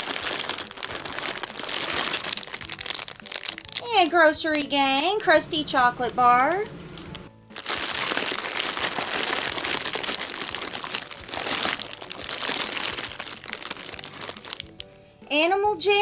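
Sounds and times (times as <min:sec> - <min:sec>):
foil packets crinkling: 0:00.0 - 0:04.8, 0:07.5 - 0:14.9.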